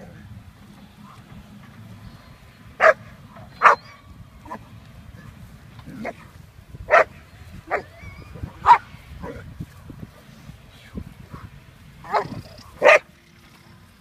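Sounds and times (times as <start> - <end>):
puppy barking: 2.8 - 4.0, 6.9 - 7.1, 8.6 - 8.8, 12.0 - 13.1.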